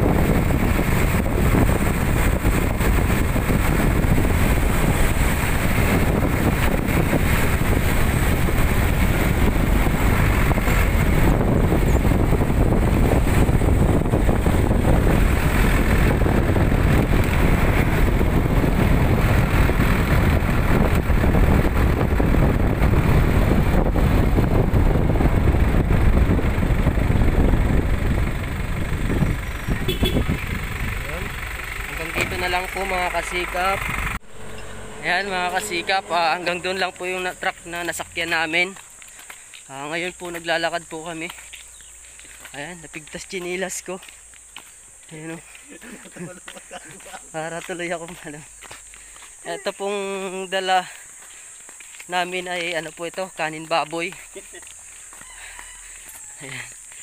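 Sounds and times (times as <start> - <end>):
truck engine: 0.0 - 40.9
road noise: 0.0 - 57.0.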